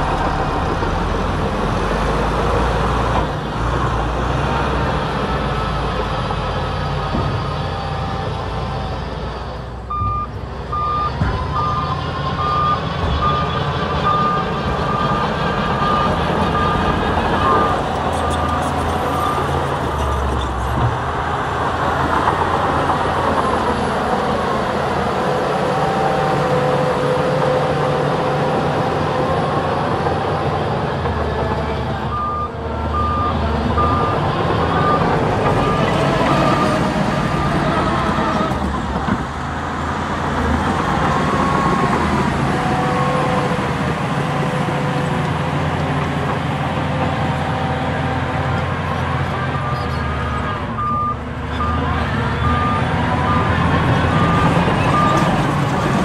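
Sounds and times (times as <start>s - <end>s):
heavy diesel engines working: 0.0s - 56.0s
reversing alarm beeping: 9.9s - 19.6s, 32.1s - 38.5s, 49.5s - 55.3s.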